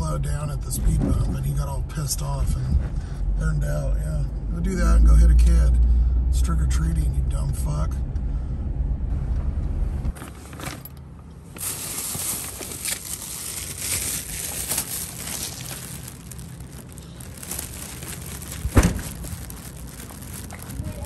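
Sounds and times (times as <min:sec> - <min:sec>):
car rumble: 0:00.0 - 0:21.0
foil bag and paper crinkling: 0:11.5 - 0:21.0.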